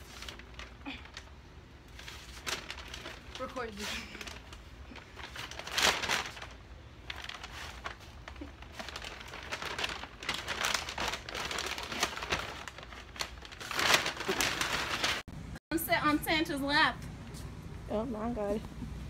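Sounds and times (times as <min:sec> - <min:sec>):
bag rustling and crinkling: 0:00.0 - 0:15.2.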